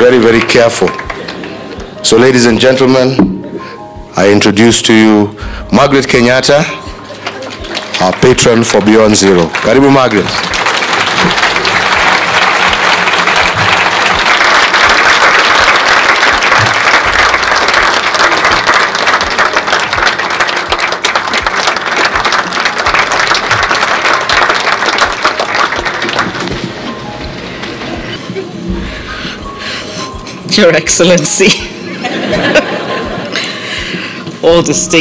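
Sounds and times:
large audience applauding: 0.0s - 1.8s, 7.0s - 27.0s.

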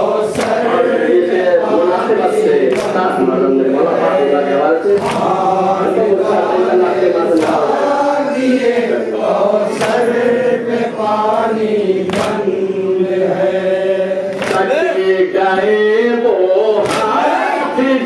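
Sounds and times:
men chanting a lament: 0.0s - 18.0s
sharp beat: 4.8s - 5.8s.

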